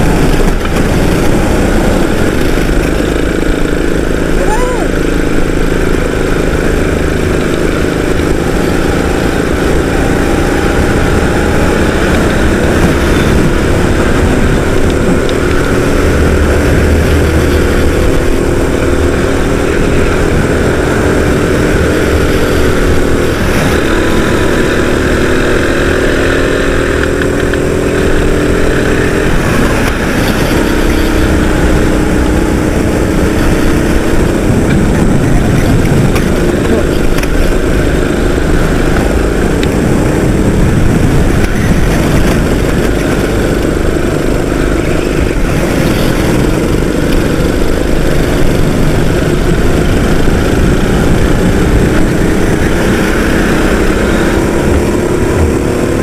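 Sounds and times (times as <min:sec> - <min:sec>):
kart engine running hard: 0:00.0 - 0:56.0.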